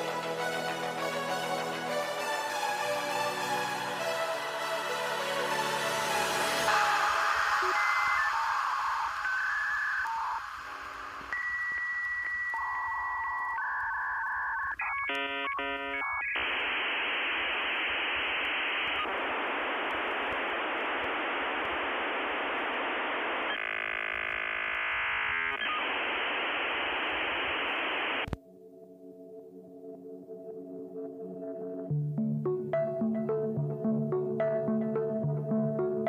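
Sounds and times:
soft synthesizer music: 0:00.0 - 0:10.0, 0:28.4 - 0:36.0
hissing static: 0:05.5 - 0:28.4
modem beeping tones: 0:07.1 - 0:16.8.

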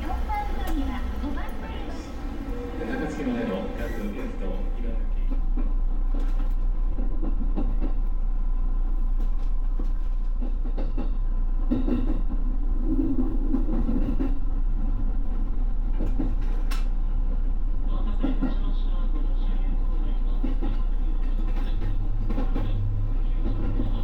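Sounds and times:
wheels clicking over rail joints: 0:00.0 - 0:02.2, 0:15.9 - 0:17.0
train wheels rumbling on rail: 0:00.0 - 0:24.0.

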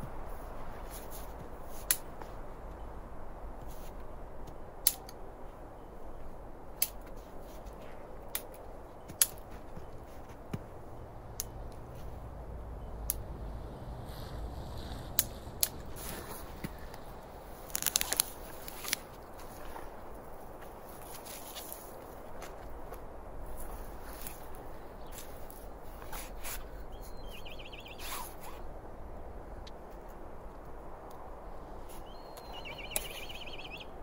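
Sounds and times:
low steady background noise: 0:00.0 - 0:34.0
dry twigs snapping: 0:00.9 - 0:02.3, 0:04.5 - 0:05.2, 0:06.8 - 0:07.3, 0:08.3 - 0:12.4, 0:13.0 - 0:26.7.

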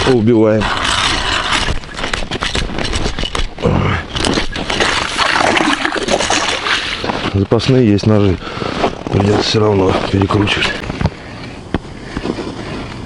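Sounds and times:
ice auger scraping through ice: 0:00.0 - 0:07.3.

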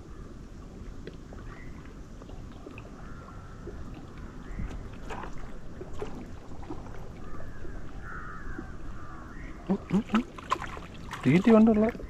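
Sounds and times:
wind rumble on microphone: 0:00.0 - 0:09.7
birds chirping: 0:07.1 - 0:10.4.

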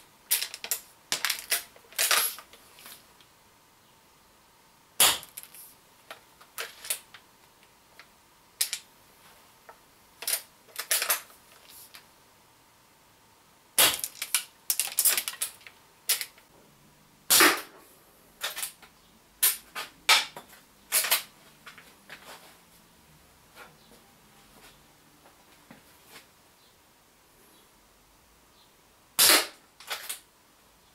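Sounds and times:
air rifle shots: 0:17.3 - 0:17.7, 0:29.2 - 0:29.6.

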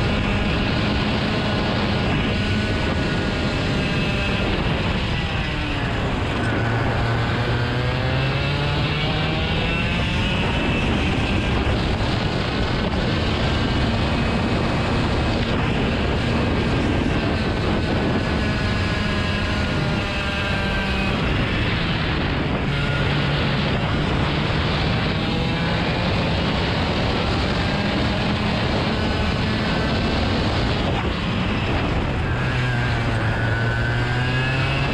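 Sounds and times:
engine running: 0:00.0 - 0:34.9
steady rushing noise: 0:00.0 - 0:34.9.

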